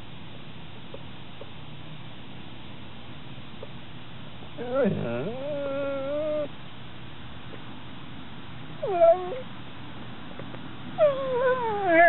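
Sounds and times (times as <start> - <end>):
dog whining: 4.6 - 6.5, 8.8 - 9.5, 11.0 - 12.0.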